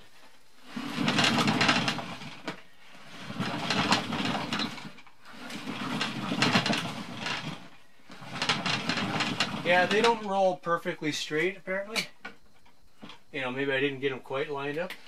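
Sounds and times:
dolly wheels rolling on wood: 0:00.0 - 0:11.3.

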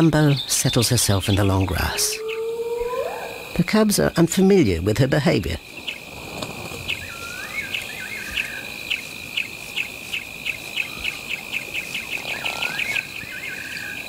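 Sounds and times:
insect chirping: 0:00.0 - 0:14.0
insects trilling: 0:00.0 - 0:14.0
bird whistled call: 0:06.9 - 0:08.6.

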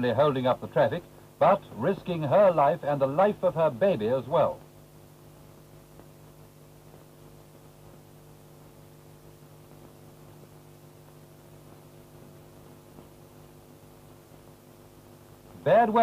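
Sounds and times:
electrical hum: 0:00.0 - 0:16.0.

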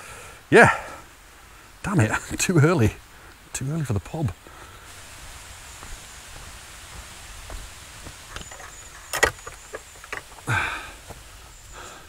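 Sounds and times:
footsteps on stony path: 0:04.4 - 0:12.0
wooden gate squeak: 0:08.3 - 0:10.4.

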